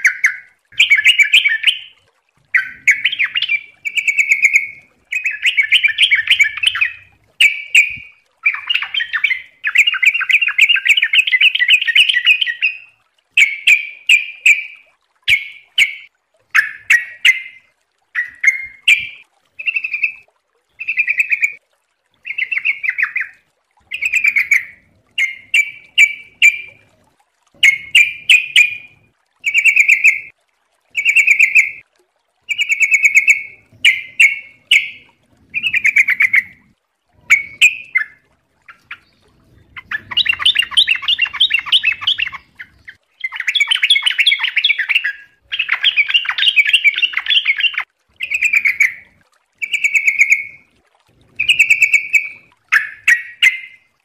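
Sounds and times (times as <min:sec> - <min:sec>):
bird singing warbled phrases: 0:00.0 - 0:21.6, 0:22.2 - 0:26.8, 0:27.6 - 0:30.3, 0:31.0 - 0:31.8, 0:32.5 - 0:50.7, 0:51.3 - 0:53.9.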